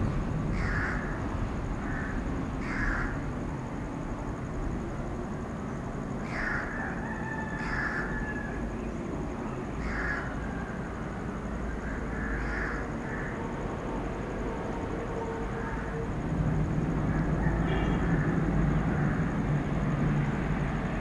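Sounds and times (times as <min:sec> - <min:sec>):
low rumble of train: 0:00.0 - 0:21.0
crow cawing: 0:00.6 - 0:01.2, 0:01.8 - 0:03.2, 0:06.2 - 0:08.6, 0:09.8 - 0:10.4, 0:11.8 - 0:13.4.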